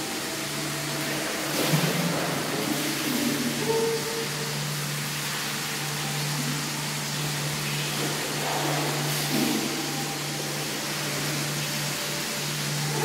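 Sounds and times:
water splashing over body: 0:00.0 - 0:05.8
low steady hum: 0:00.0 - 0:13.0.

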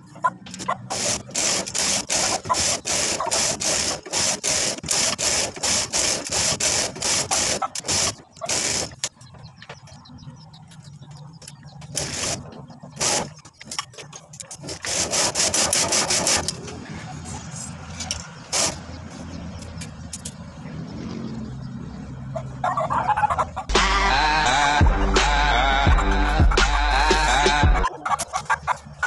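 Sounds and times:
knitting machine carriage rasping: 0:00.4 - 0:09.2, 0:11.5 - 0:16.8, 0:17.4 - 0:19.0.

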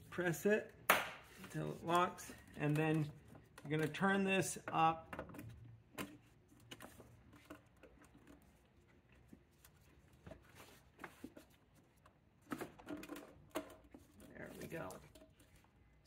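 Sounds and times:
clicks and rustles of handling: 0:00.1 - 0:16.0.

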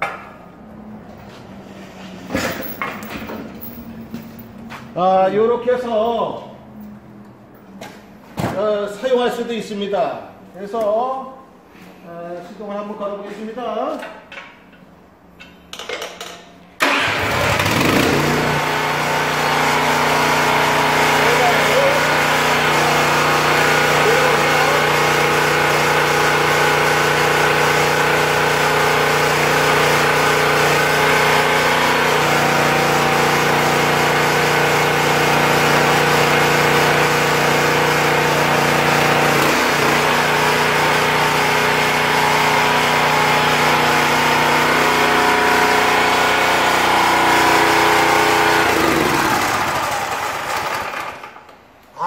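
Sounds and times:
log splitter engine running: 0:16.8 - 0:51.6.

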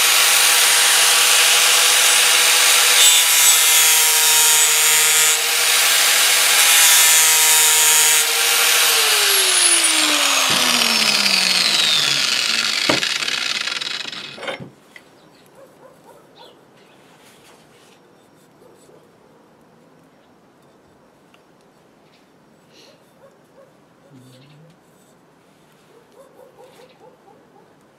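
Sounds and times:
grinder winding down whine: 0:00.0 - 0:14.6
angle grinder grinding steel: 0:00.0 - 0:14.7
grinder knocking on wooden table: 0:10.2 - 0:14.8.

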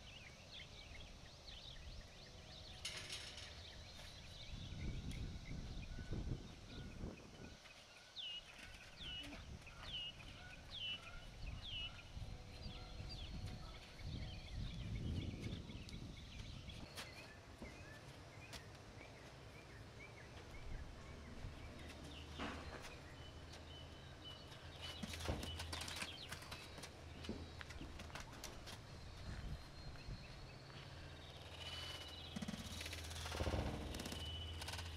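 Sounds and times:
songbird chirping: 0:00.0 - 0:34.9
hooves thudding on dirt: 0:21.6 - 0:34.9.

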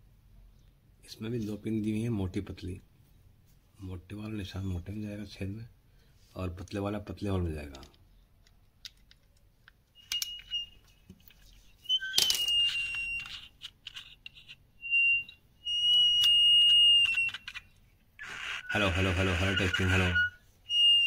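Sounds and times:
hearing aid feedback whistle: 0:10.0 - 0:11.0, 0:11.8 - 0:13.5, 0:14.8 - 0:17.6, 0:18.2 - 0:21.0.

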